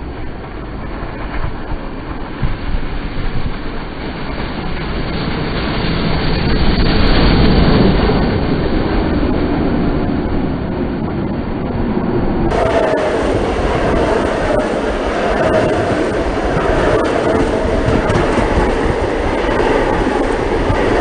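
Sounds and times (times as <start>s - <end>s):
steam locomotive passing at speed: 12.4s - 21.0s
coaches rolling by: 12.5s - 21.0s.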